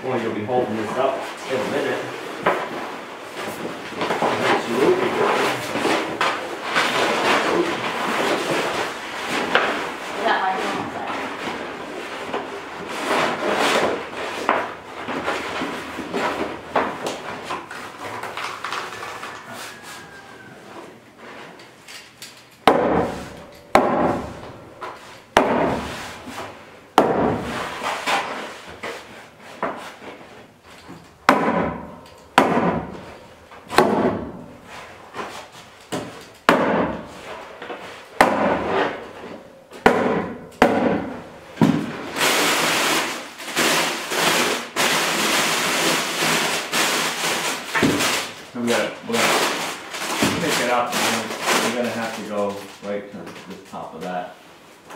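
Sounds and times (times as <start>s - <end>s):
tar paper rustling: 0.8s - 20.5s, 41.8s - 54.2s
sharp hammer strikes: 22.6s - 24.5s, 25.3s - 26.0s, 27.0s - 27.5s, 31.2s - 33.0s, 33.7s - 34.4s, 38.2s - 38.8s, 39.7s - 41.9s.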